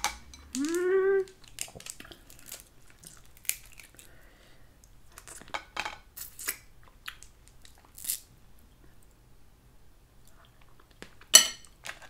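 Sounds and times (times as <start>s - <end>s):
crab shell meat pulling: 0.1s - 4.2s
chewing: 0.5s - 4.1s.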